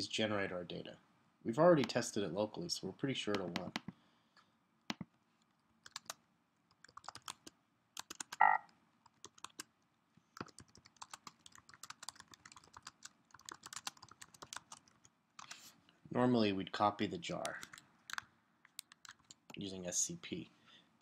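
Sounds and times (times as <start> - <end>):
typing on computer keyboard: 5.8 - 9.7, 10.4 - 15.6, 17.5 - 19.6.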